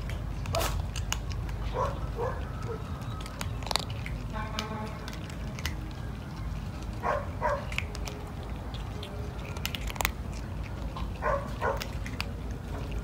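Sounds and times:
cat crunching dry kibble: 0:00.0 - 0:13.0.

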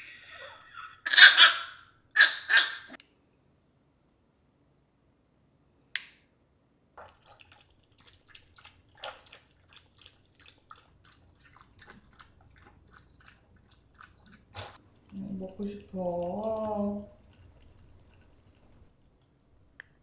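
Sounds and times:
dogs lapping milk: 0:07.0 - 0:19.4.

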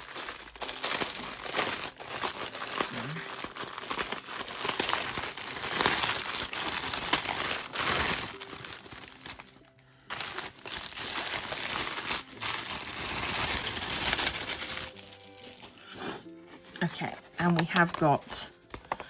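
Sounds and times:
cellophane wrapper crinkling: 0:00.0 - 0:15.9, 0:16.5 - 0:19.0.

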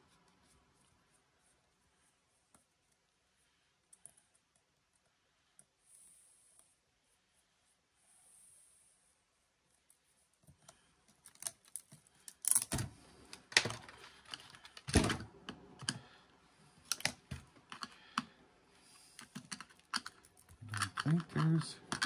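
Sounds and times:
hand tools clicking on plastic: 0:16.8 - 0:18.3, 0:19.2 - 0:22.0.

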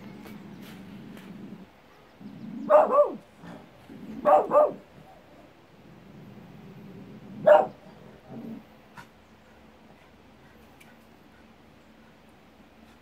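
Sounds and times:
small dog barking: 0:02.6 - 0:03.6, 0:04.2 - 0:05.2, 0:07.4 - 0:07.8.

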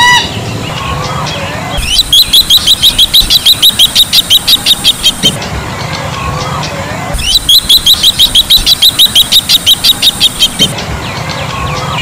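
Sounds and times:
bird calling sharp high notes: 0:00.0 - 0:05.4, 0:06.2 - 0:12.0
faint bird calls: 0:06.2 - 0:10.8.

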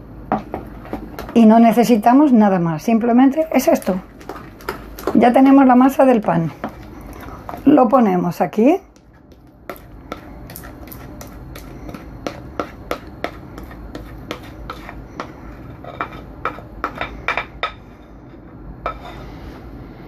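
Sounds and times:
low steady hum: 0:00.0 - 0:20.0
spatula scraping glass bowl: 0:09.7 - 0:19.4.

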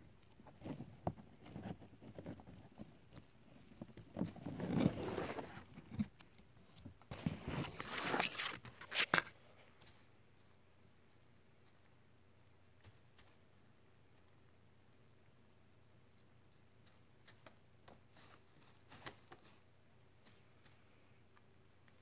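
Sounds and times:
hens scratching in wood shavings: 0:18.0 - 0:21.0.

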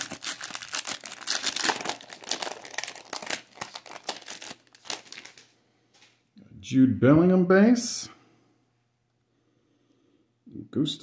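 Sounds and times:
foil wrapper crinkling and tearing: 0:00.0 - 0:05.6.

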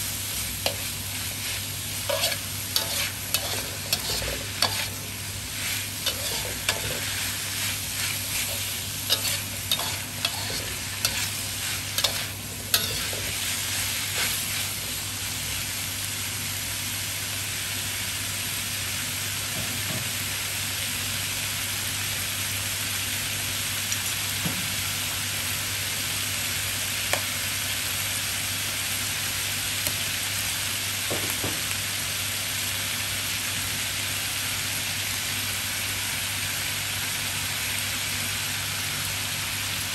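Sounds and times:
food sizzling: 0:00.0 - 0:19.4, 0:20.2 - 0:39.9
spatula scraping a wok: 0:00.3 - 0:15.0.

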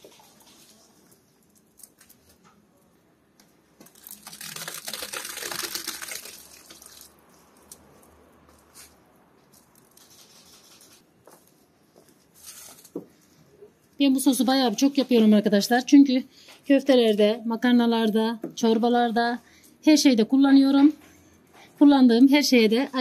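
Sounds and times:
puree pouring into a pot: 0:03.8 - 0:07.2.

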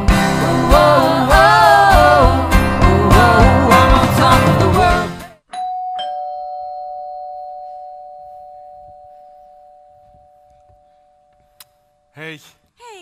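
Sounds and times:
pop song with steady beat: 0:00.0 - 0:05.4
two-tone doorbell chime: 0:05.5 - 0:12.0.

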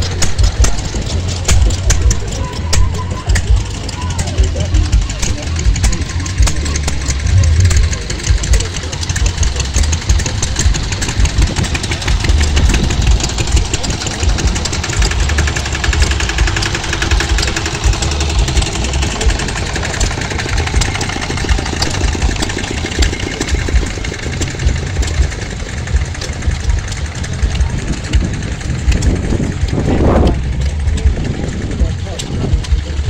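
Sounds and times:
stationary engines clattering: 0:00.0 - 0:33.0.

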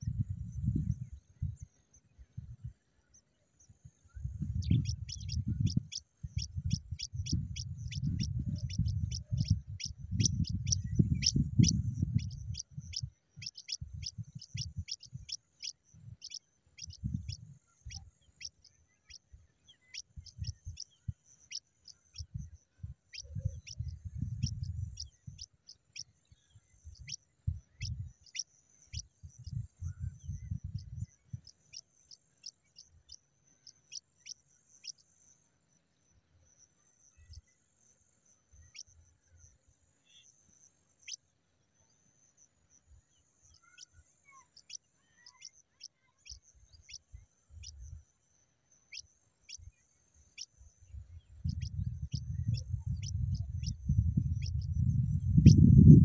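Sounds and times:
nestlings chirping high: 0:04.6 - 0:22.4, 0:51.4 - 0:54.8.

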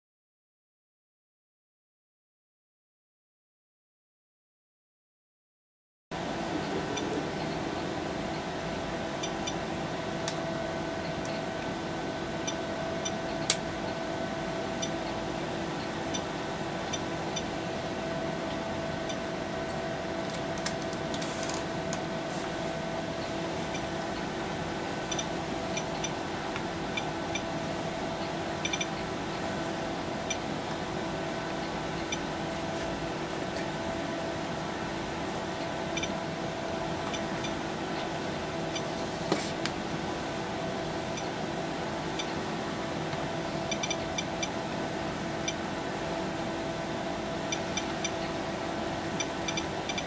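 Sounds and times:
steady electrical hum: 0:06.2 - 0:50.0.

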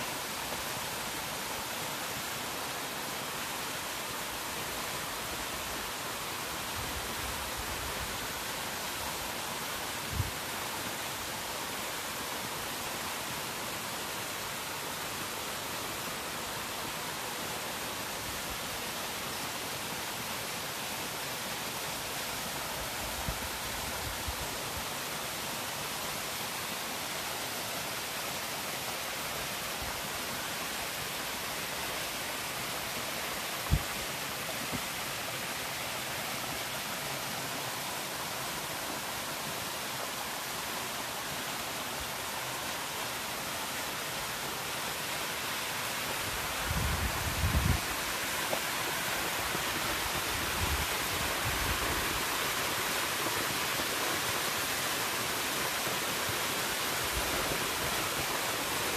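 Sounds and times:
waterfall splashing into pool: 0:47.7 - 0:58.9.

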